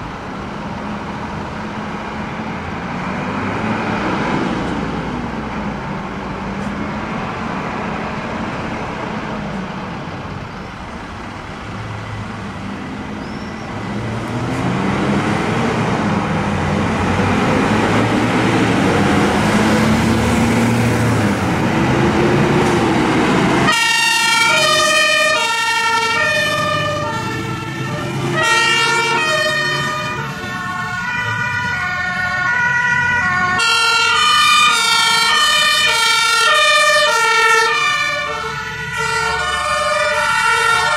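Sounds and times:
diesel engines accelerating: 0:00.0 - 0:40.9
two-tone sirens: 0:13.6 - 0:40.9.

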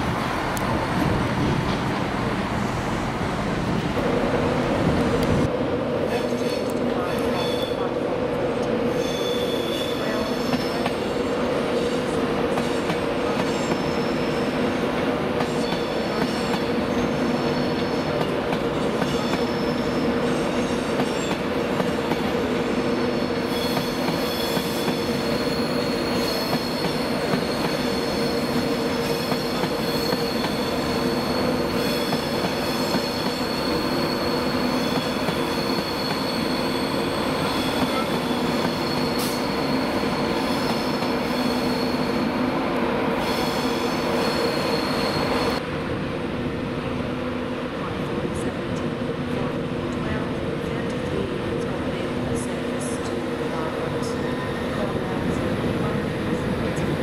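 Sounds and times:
low train hum: 0:00.0 - 0:57.0
train wheels squealing: 0:06.2 - 0:07.9, 0:08.9 - 0:10.9, 0:13.4 - 0:14.6, 0:15.4 - 0:18.2, 0:19.0 - 0:21.4, 0:22.7 - 0:42.4, 0:43.2 - 0:45.6.

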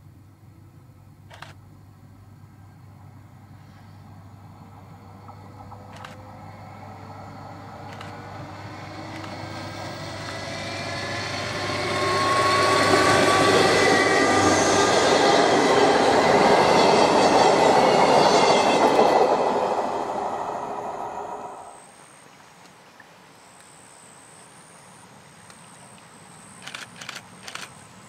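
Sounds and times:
train wheels rumbling on rails: 0:03.1 - 0:21.7
train motors whining: 0:05.5 - 0:21.8.

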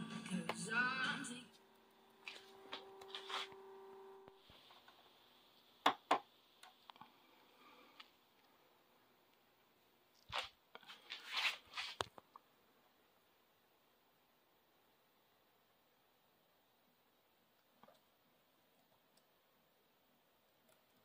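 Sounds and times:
rustling handling noise: 0:02.2 - 0:03.5.

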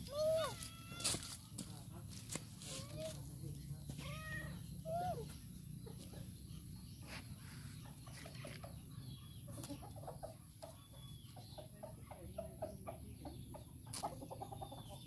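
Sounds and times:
chickens clucking: 0:05.2 - 0:15.0.

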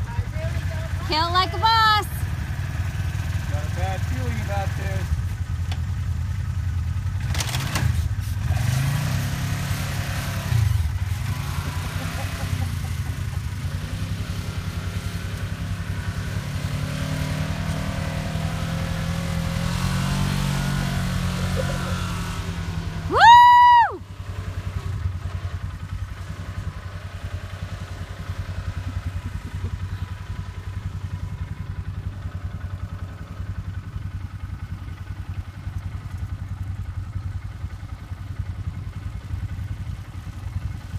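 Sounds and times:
off-road vehicle engine revving: 0:00.0 - 0:40.9
high-pitched whoop: 0:23.1 - 0:24.0.

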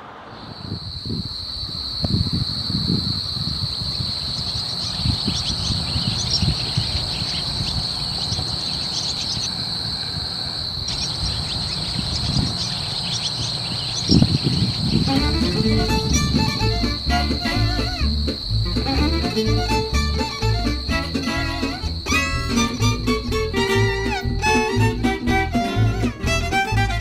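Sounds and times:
high-pitched insect chorus: 0:00.0 - 0:26.2
low uneven rumble: 0:14.3 - 0:27.0.

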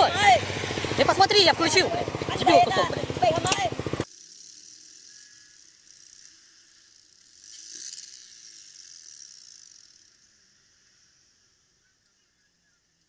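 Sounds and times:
traffic noise: 0:00.0 - 0:04.1.

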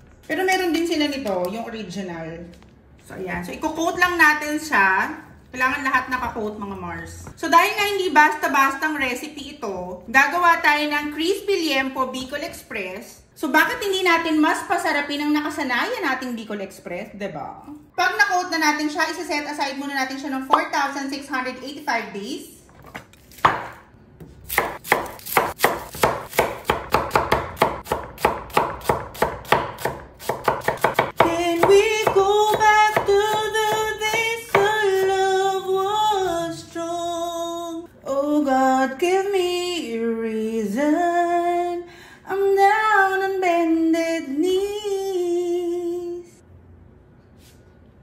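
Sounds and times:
knife chopping on wooden board: 0:22.9 - 0:34.7
woman singing: 0:31.2 - 0:46.4.

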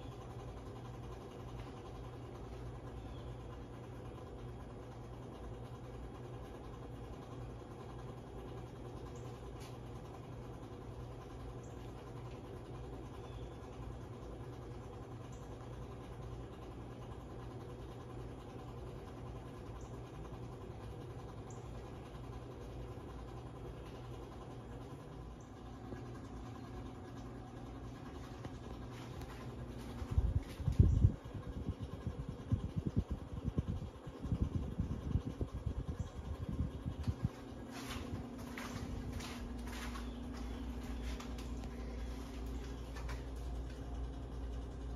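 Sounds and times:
ceiling fan humming: 0:00.0 - 0:44.9
air buffeting on microphone: 0:28.2 - 0:43.6.

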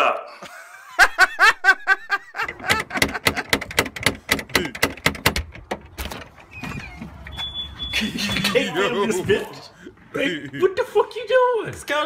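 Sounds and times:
wooden door rattling and knocking: 0:02.3 - 0:07.4.

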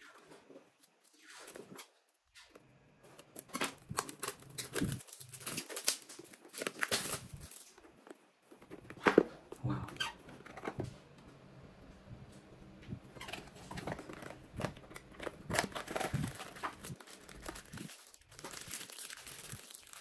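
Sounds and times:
paper insert rustling: 0:13.2 - 0:20.0
cardboard box tearing and rustling: 0:13.7 - 0:20.0.

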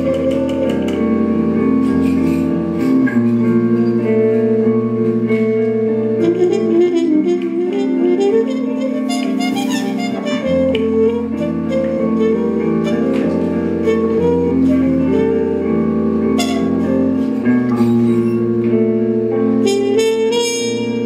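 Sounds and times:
low looped guitar drone: 0:00.0 - 0:19.9
guitar playing: 0:00.0 - 0:21.0
trumpet playing held notes: 0:06.2 - 0:15.7, 0:16.3 - 0:17.0, 0:19.6 - 0:21.0.

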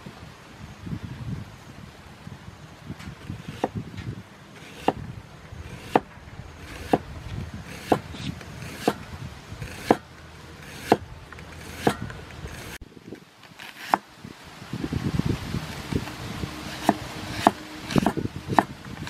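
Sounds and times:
cleaver chopping on wooden block: 0:03.4 - 0:03.8, 0:04.6 - 0:05.0, 0:05.7 - 0:06.1, 0:06.7 - 0:07.0, 0:07.7 - 0:09.0, 0:09.6 - 0:10.0, 0:10.6 - 0:11.0, 0:11.6 - 0:12.8, 0:16.7 - 0:18.8.

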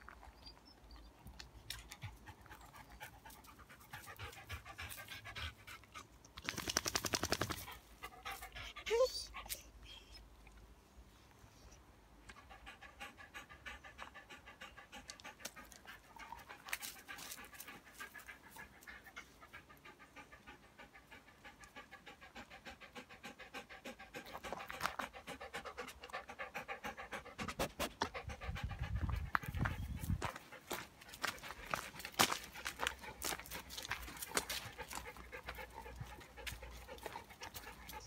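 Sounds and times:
dog panting fast: 0:01.7 - 0:06.0, 0:12.3 - 0:38.0.

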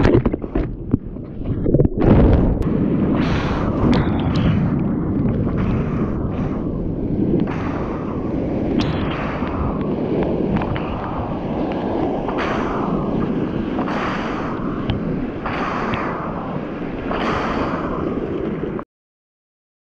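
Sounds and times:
wind buffeting microphone: 0:00.0 - 0:18.8
sea water splashing: 0:07.5 - 0:18.7.

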